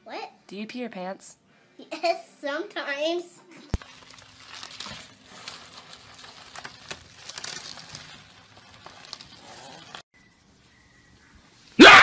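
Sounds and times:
bubble plastic crinkling: 3.6s - 10.1s.

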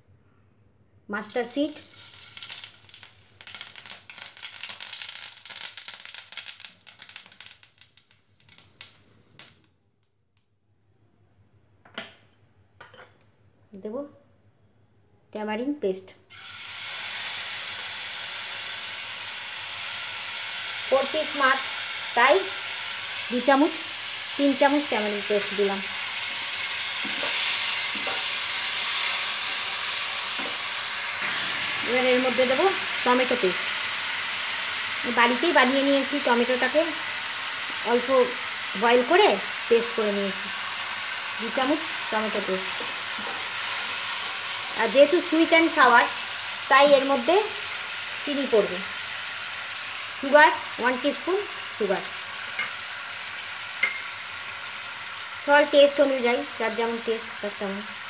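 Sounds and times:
paste sizzling in hot oil: 1.3s - 8.8s, 16.3s - 58.0s
seeds popping in hot oil: 1.3s - 9.7s, 24.3s - 40.5s.

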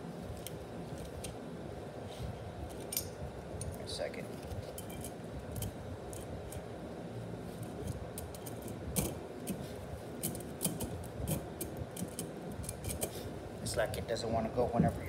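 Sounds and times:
metal parts clicking and clinking: 2.7s - 6.6s, 7.6s - 9.6s, 10.2s - 13.1s.

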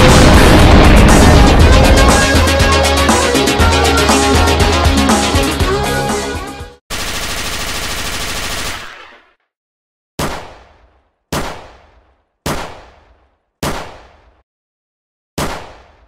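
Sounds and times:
automatic gunfire burst: 6.9s - 9.1s
single gunshots: 10.2s - 14.4s, 15.4s - 16.0s.

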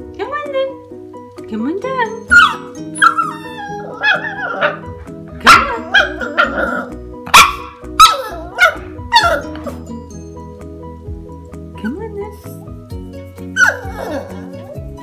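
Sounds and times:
puppy barking: 2.3s - 9.8s, 13.6s - 14.8s.

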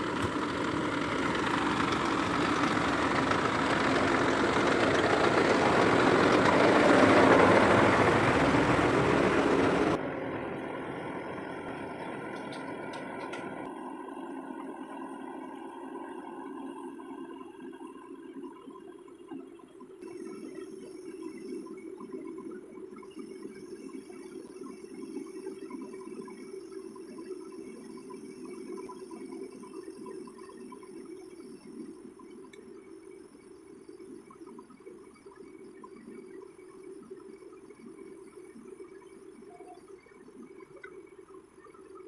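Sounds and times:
diesel truck engine idling: 0.0s - 13.6s
faint ticks: 32.2s - 33.1s, 34.0s - 42.0s.

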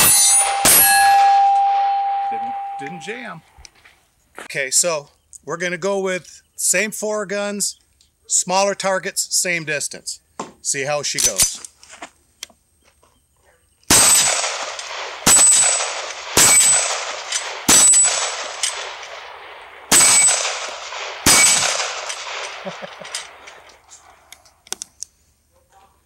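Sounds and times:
pistol shots with echo: 0.0s - 3.1s, 13.9s - 24.2s.

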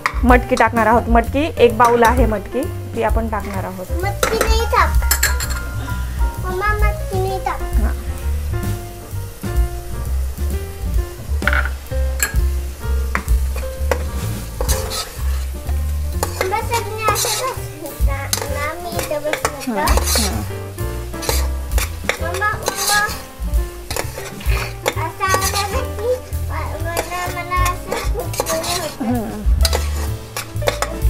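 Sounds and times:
beans sizzling in hot oil: 0.0s - 31.0s
steel spoon scraping a pot: 13.6s - 15.6s, 16.2s - 17.7s, 18.3s - 20.5s, 21.2s - 23.3s, 23.9s - 26.4s, 27.0s - 29.0s, 29.6s - 31.0s.

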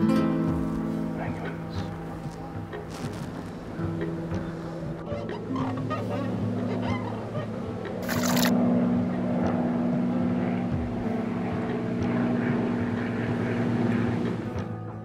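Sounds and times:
low engine drone: 0.5s - 15.0s
water splash: 8.0s - 8.5s.

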